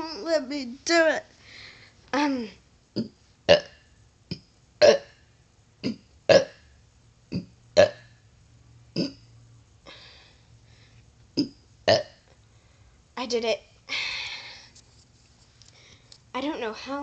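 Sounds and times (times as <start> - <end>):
girl burping: 4.8 - 5.1.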